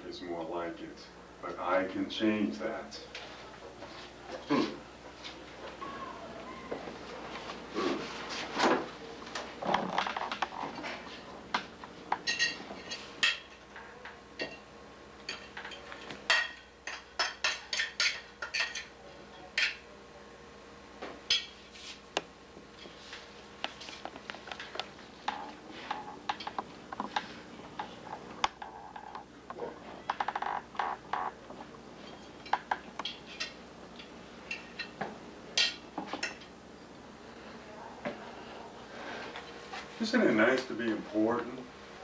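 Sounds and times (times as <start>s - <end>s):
cutlery clinking on plates: 12.2s - 13.6s, 15.3s - 19.8s.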